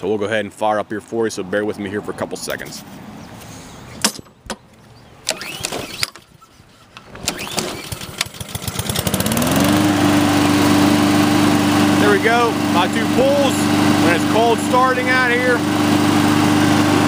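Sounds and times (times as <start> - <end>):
lawn mower engine pull-starting: 4.0 - 17.0
lawn mower engine running: 5.2 - 17.0.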